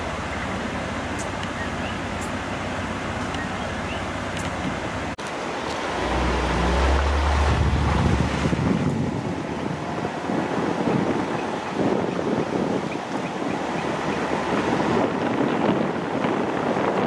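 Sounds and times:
car driving along road: 0.0 - 17.0
low rumble: 5.6 - 10.2
wind noise on microphone: 5.7 - 17.0.

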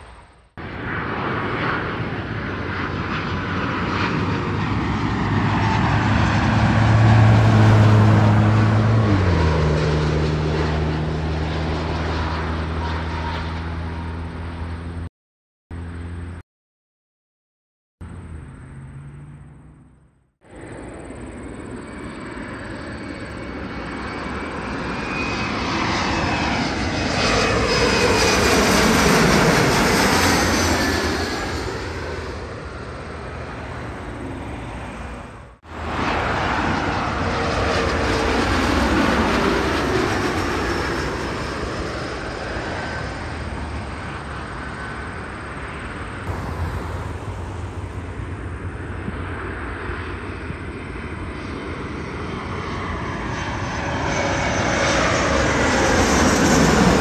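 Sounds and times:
jet airliner passing overhead: 0.0 - 15.1, 15.8 - 16.4, 18.0 - 57.0.

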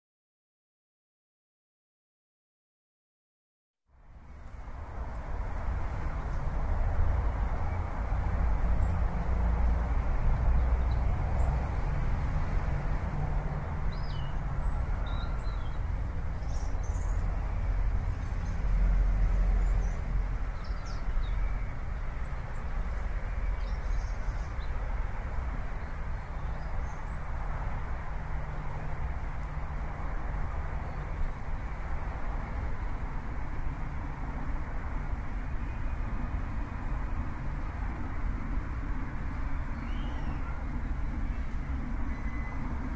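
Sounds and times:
low city rumble: 3.9 - 42.9
bird chirps: 13.9 - 18.6, 39.7 - 42.7.

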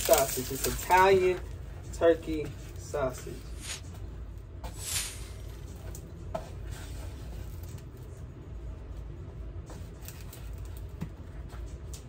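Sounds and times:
package rustling: 0.0 - 1.2
steady low hum: 0.0 - 12.0.

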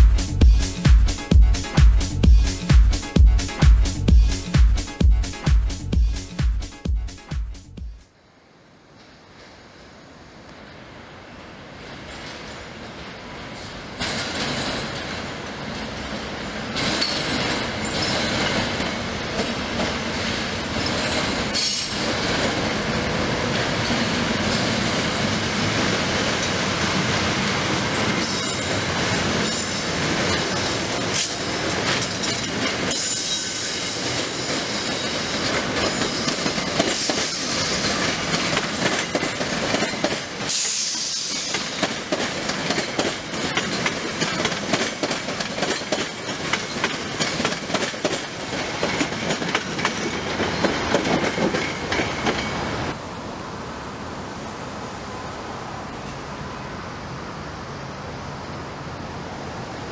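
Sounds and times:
train rolling noise: 0.0 - 59.9
wheels clicking over rail joints: 12.0 - 26.7, 27.7 - 52.6
train wheel squeal: 16.8 - 19.5, 20.1 - 22.5, 28.1 - 42.0.

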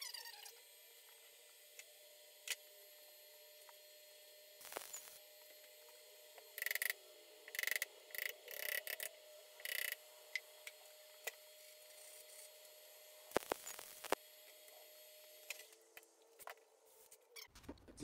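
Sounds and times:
welder crackling bursts: 4.6 - 5.2, 13.3 - 14.2.

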